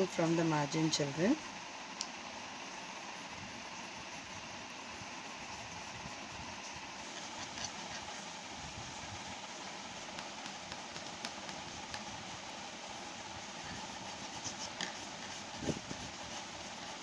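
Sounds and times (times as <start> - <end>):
crayon scribbling on paper: 2.9 - 8.3, 13.4 - 17.0.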